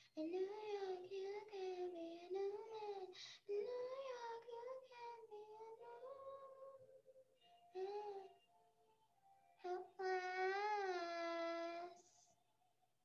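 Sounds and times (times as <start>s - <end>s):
girl singing: 0.0s - 7.0s, 7.7s - 8.4s, 9.6s - 12.3s.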